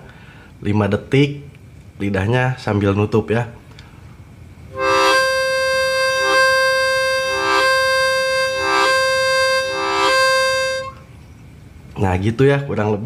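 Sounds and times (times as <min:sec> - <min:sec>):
harmonica chord: 0:04.7 - 0:11.1
harmonica note: 0:04.7 - 0:11.1.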